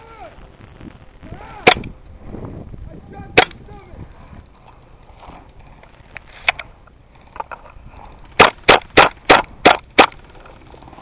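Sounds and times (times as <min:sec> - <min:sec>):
airsoft gun cracks: 0:03.4 - 0:03.6, 0:08.4 - 0:10.2.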